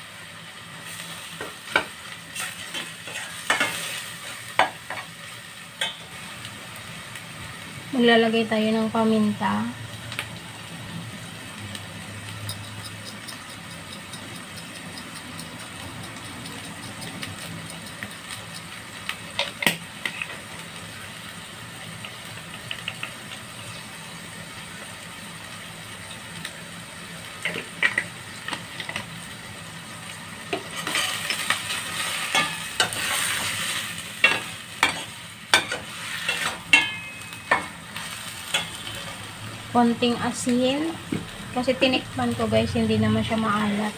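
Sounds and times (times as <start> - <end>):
food sizzling in pan: 0.0 - 43.9
metal spatula scraping pan: 12.2 - 18.6, 30.6 - 39.2.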